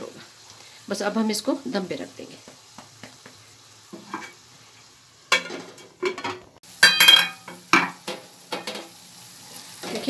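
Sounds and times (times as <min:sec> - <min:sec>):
faint sizzle: 0:00.0 - 0:10.0
metal cookware clanking on pot: 0:05.3 - 0:08.9.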